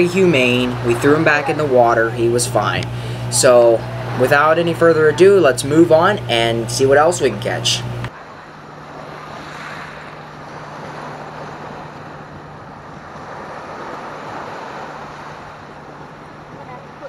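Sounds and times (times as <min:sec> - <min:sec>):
surf washing up beach: 0:00.0 - 0:17.0
wind buffeting microphone: 0:07.9 - 0:17.0.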